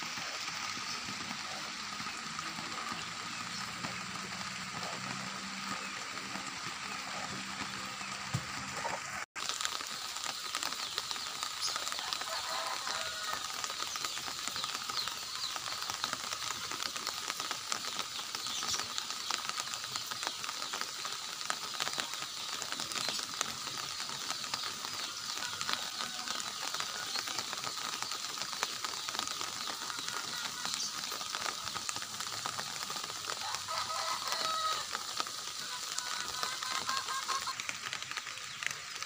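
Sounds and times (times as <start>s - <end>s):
rain pattering on foliage: 0.0s - 39.0s.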